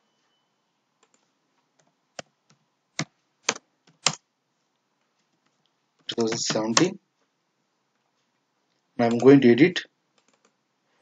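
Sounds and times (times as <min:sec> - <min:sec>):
keyboard keys clicking: 0:01.0 - 0:02.3, 0:03.0 - 0:04.2, 0:06.0 - 0:07.0, 0:09.0 - 0:09.4, 0:10.2 - 0:10.6.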